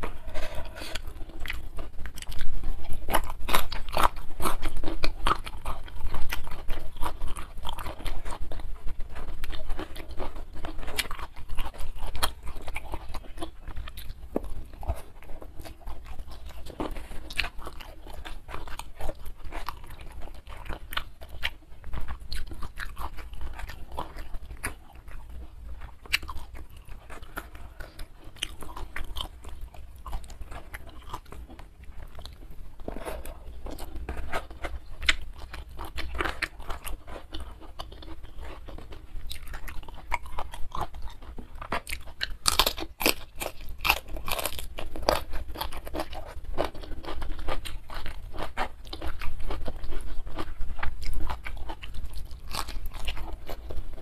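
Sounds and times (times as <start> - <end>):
close chewing with crunches: 0.0 - 54.0.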